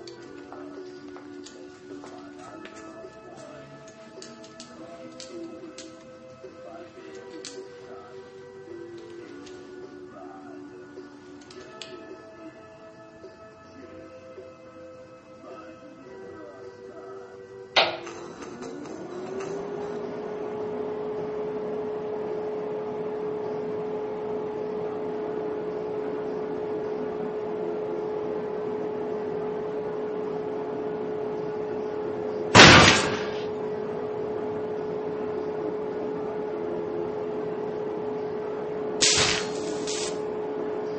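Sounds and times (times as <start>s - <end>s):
tanning bed humming: 0.0s - 40.9s
canopy slamming down: 32.6s - 33.5s.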